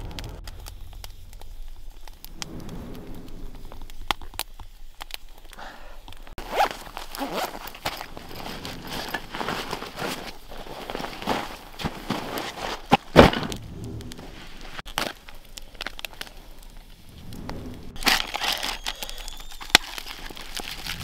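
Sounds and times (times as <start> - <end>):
campfire crackling: 0.0 - 21.0
clothing rustling: 6.3 - 14.9
crunching in snow: 6.3 - 21.0.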